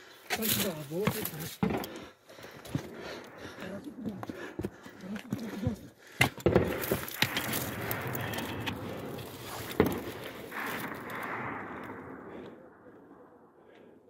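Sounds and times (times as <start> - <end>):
sharp crack: 6.4 - 12.9.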